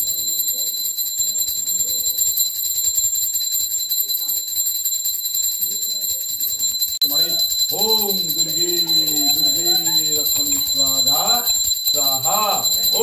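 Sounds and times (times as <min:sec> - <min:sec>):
bell ringing rapidly: 0:00.0 - 0:13.0
faint chanting voices: 0:07.2 - 0:13.0.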